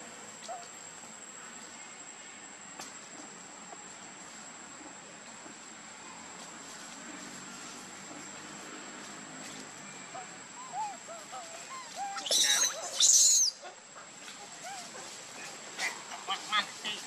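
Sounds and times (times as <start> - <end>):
high insect whine: 0.0 - 17.0
high-pitched monkey scream: 10.6 - 13.7
young monkeys squeaking: 10.6 - 15.0.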